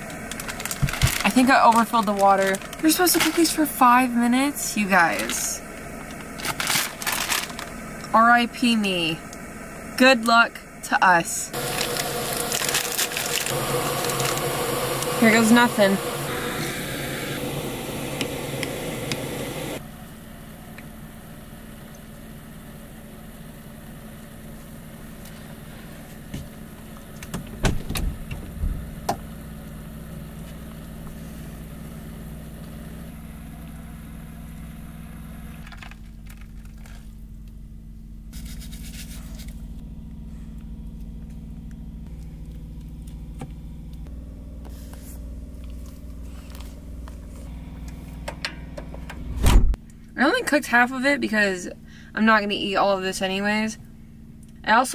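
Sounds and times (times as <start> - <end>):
gas burner hissing: 0.0 - 35.6
steady low hum: 0.0 - 54.9.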